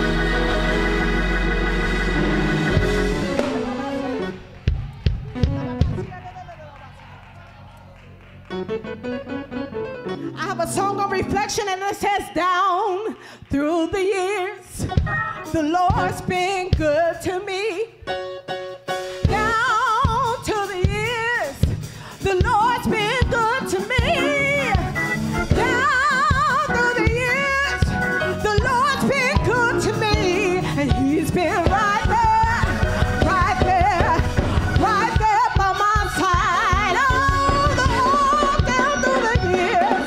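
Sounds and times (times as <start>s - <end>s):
instrumental accompaniment with beat: 0.0s - 11.5s, 14.8s - 17.1s, 18.0s - 40.0s
woman singing gospel song: 10.4s - 17.9s, 19.3s - 40.0s.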